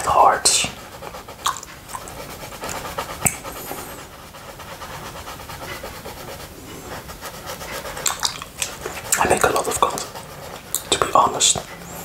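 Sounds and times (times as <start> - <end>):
tongue licking wet mouth sounds: 1.3 - 4.1, 8.0 - 11.1.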